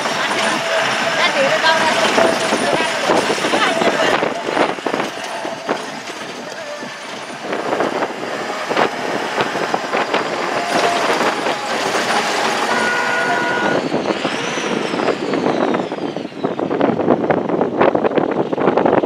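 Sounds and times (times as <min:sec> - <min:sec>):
rattling and knocking in cabin: 0:00.0 - 0:13.8
vehicle engine and road noise: 0:00.0 - 0:19.0.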